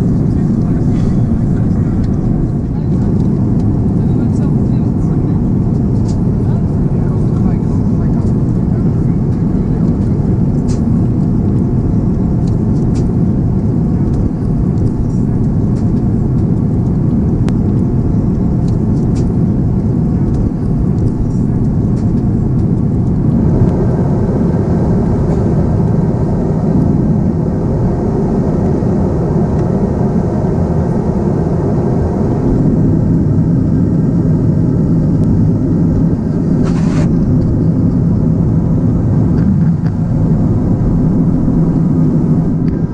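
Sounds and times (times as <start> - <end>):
airplane cabin engine roar: 0.0 - 42.9.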